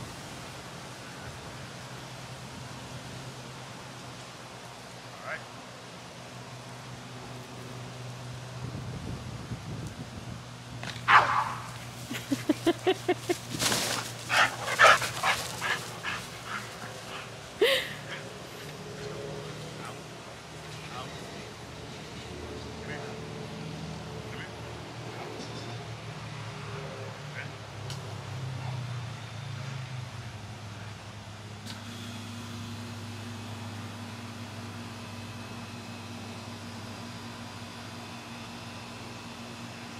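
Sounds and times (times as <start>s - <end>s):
low mechanical hum: 0.0s - 39.9s
dog yipping: 11.1s - 11.7s.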